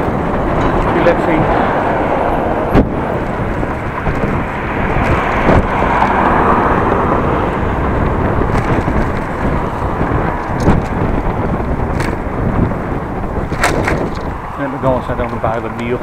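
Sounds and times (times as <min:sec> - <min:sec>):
wind rushing on microphone: 0:00.0 - 0:16.0
bicycle knocks: 0:02.7 - 0:06.3, 0:08.0 - 0:14.5.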